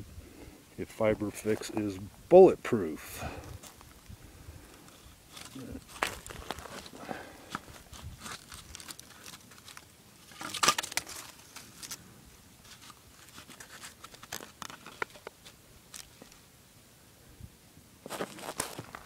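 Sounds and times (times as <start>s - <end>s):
dry branches crackling and snapping: 3.4s - 12.0s, 12.6s - 16.4s
small clicks and rustles: 3.5s - 12.0s, 12.6s - 16.4s.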